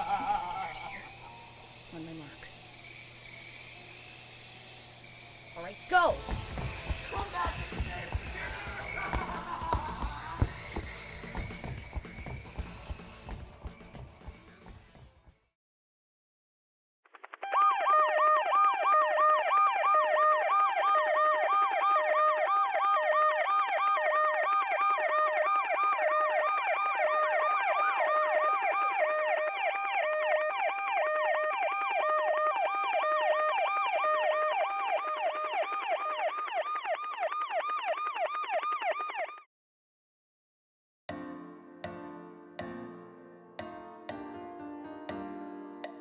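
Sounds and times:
siren yelp: 0.0 - 1.3, 17.4 - 39.5
two-tone hi-lo siren: 0.0 - 9.6, 17.4 - 39.5.

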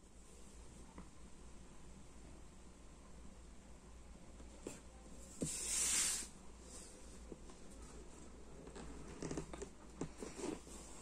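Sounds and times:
skin sliding across cardboard box: 5.3 - 7.0.

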